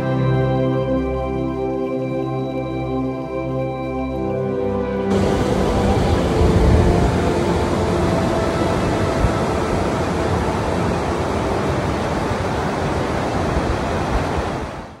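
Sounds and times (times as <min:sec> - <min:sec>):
river water rushing: 0:05.1 - 0:15.0.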